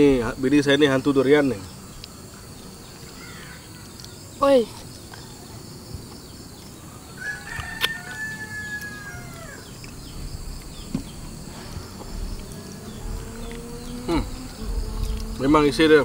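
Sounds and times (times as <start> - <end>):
insects droning: 0.0 - 16.0
rooster crowing: 7.0 - 10.1.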